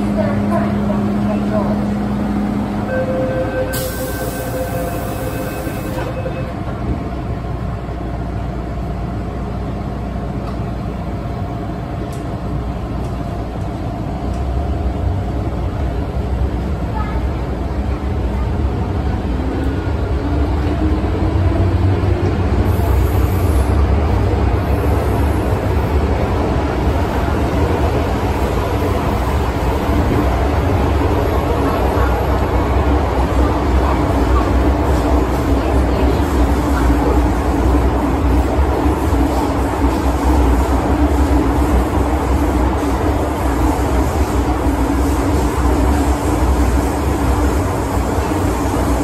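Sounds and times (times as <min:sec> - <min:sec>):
subway train running rumble: 0:00.0 - 0:49.0
door-closing warning tones: 0:02.8 - 0:06.7.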